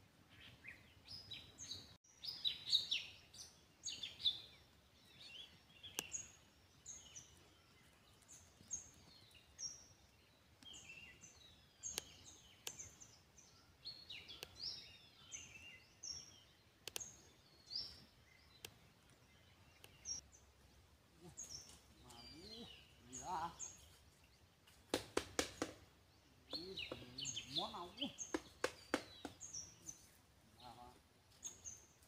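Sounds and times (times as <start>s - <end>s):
small birds chirping: 0.2s - 32.0s
sharp clicks: 11.9s - 12.9s, 16.8s - 17.1s.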